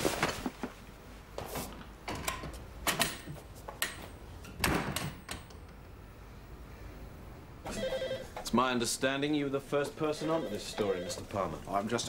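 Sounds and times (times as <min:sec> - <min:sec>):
wooden door opening and shutting: 0:04.6 - 0:05.6.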